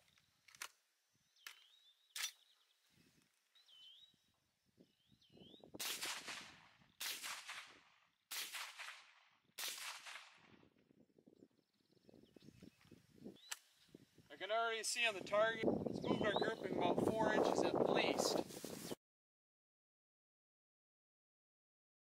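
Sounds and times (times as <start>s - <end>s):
sharp clicks: 1.4s - 2.4s
suppressed rifle shots: 5.8s - 10.6s.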